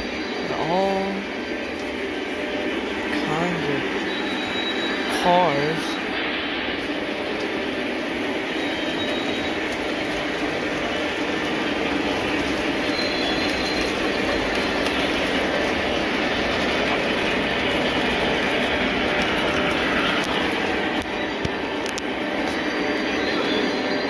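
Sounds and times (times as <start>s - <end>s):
model trains rumbling on track: 0.0s - 24.0s
wheels squealing: 8.3s - 21.8s.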